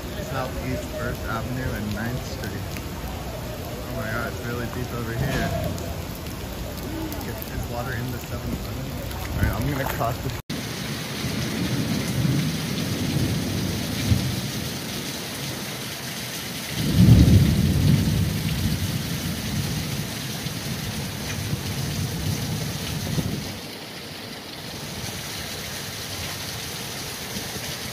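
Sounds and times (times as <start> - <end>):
gusting wind: 0.0 - 14.4
thunder rumble: 0.0 - 14.8, 16.7 - 23.6
heavy rain: 0.0 - 27.9.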